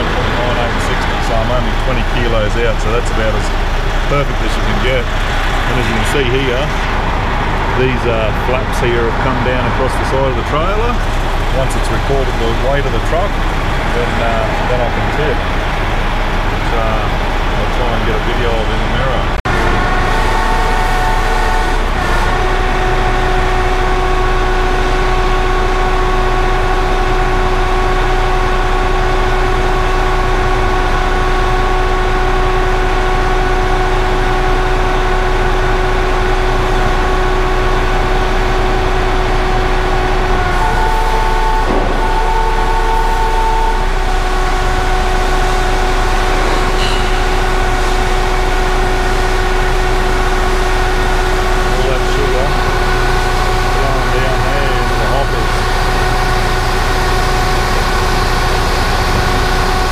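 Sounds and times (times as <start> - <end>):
hydraulics whining: 0.0 - 59.9
truck engine rumble: 0.0 - 59.9
high tone: 40.4 - 59.9.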